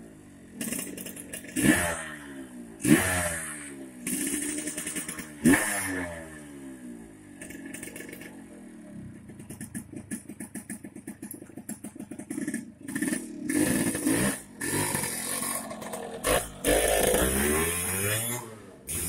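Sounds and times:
motorcycle engine idling: 0:00.0 - 0:02.8, 0:03.8 - 0:05.5, 0:06.4 - 0:17.4
motorcycle passing by: 0:12.3 - 0:19.0.

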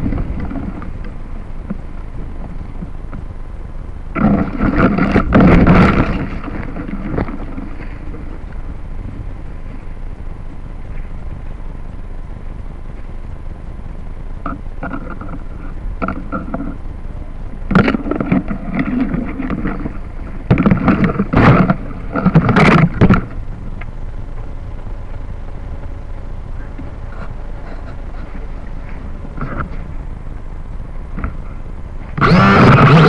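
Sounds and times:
leaves rustling against microphone: 0:00.0 - 0:33.0
wind rumble on microphone: 0:00.0 - 0:33.0.

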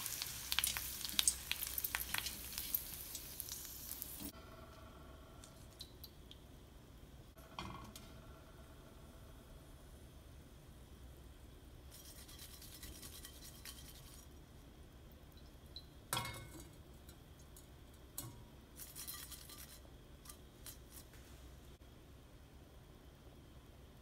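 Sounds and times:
leaves crackling in hot oil: 0:00.0 - 0:04.4, 0:18.7 - 0:21.2.

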